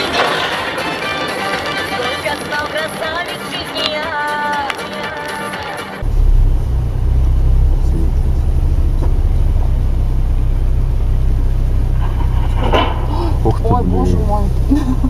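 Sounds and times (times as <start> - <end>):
car driving rumble: 6.0 - 15.0.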